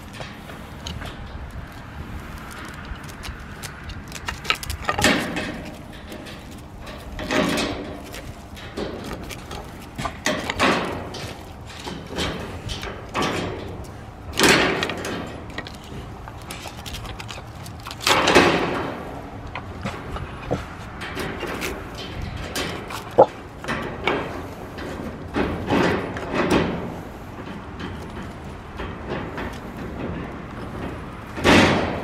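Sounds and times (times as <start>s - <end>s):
dog clawing antler across dirt: 0.0s - 19.2s, 19.8s - 23.5s.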